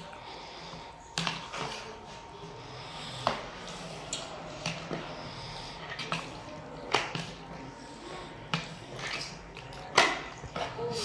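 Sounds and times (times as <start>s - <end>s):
wet squelching of stirring: 3.1s - 10.8s.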